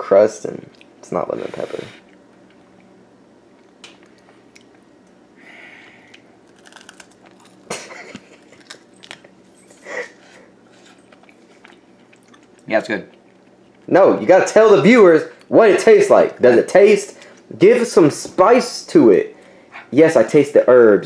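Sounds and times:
faint steady hum: 0.0 - 21.0
crunching while chewing: 6.0 - 13.9.

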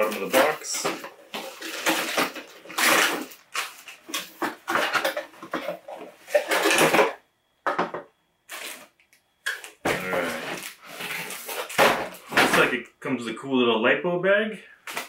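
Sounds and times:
cardboard crinkling: 0.0 - 6.8, 8.5 - 9.0, 9.6 - 12.7
plastic bags rustling: 0.0 - 7.2, 8.5 - 12.8.

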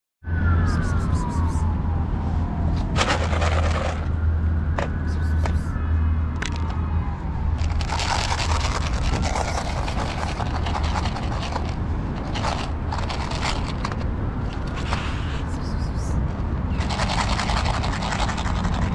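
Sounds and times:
scraping and crunching: 2.8 - 4.2, 7.6 - 15.4.

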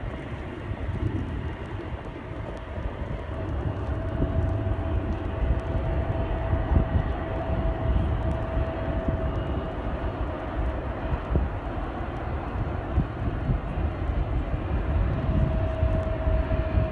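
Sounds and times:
jet airliner engines rumbling: 0.0 - 16.9.

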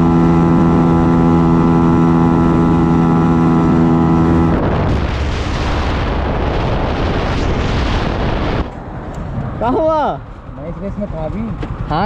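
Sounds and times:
motorcycle engine at speed: 0.0 - 12.0
wind buffeting microphone: 2.4 - 12.0.

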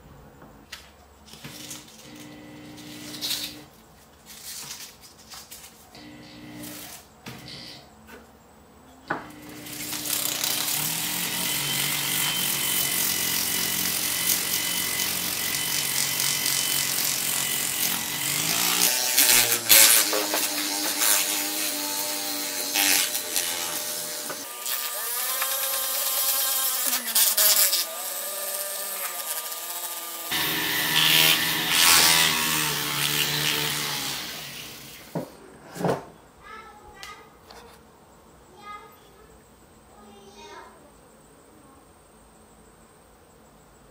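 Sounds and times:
rotary tool grinding metal: 1.4 - 3.7, 6.0 - 7.8, 9.2 - 35.1.

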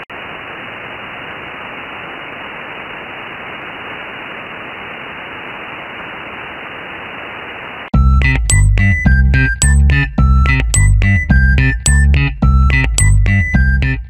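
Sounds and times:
radio static hiss: 0.0 - 7.9.

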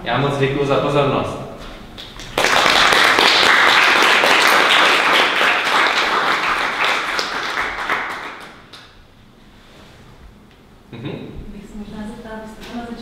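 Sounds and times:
audience applauding: 2.0 - 8.9.

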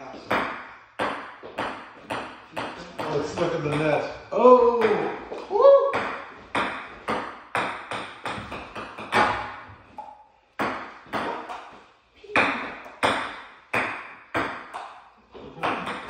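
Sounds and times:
ping-pong ball clicking: 12.4 - 16.0.

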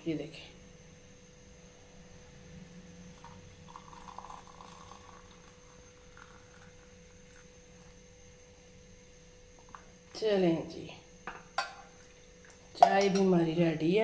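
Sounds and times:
electrical hum: 0.0 - 14.0
tea pouring through strainer: 3.1 - 8.0.

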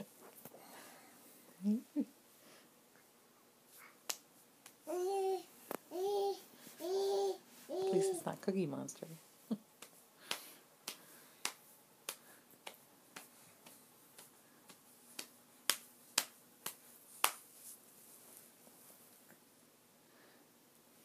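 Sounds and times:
baby sound: 4.9 - 8.2.

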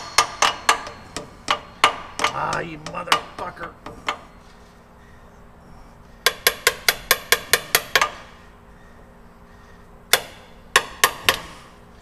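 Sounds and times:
hammer striking metal: 0.0 - 4.3, 6.2 - 8.3, 10.1 - 11.6.

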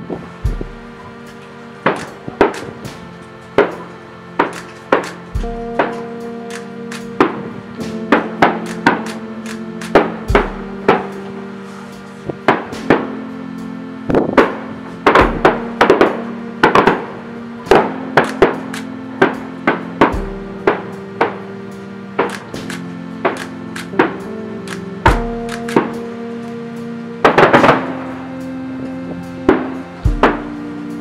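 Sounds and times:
sustained music chords: 0.0 - 31.0
firework shells bursting: 1.3 - 7.5, 8.1 - 11.2, 14.4 - 21.4, 22.2 - 26.0.

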